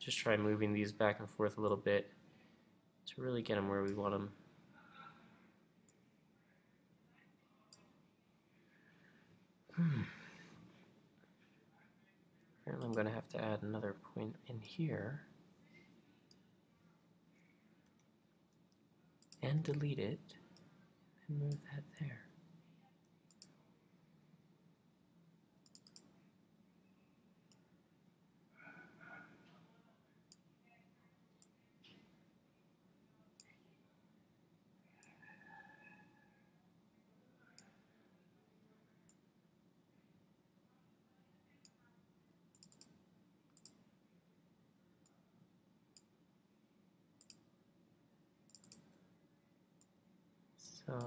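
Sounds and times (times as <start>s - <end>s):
computer mouse clicks: 23.3s - 23.6s, 25.6s - 26.1s, 42.5s - 43.8s, 47.2s - 47.4s, 48.5s - 49.0s.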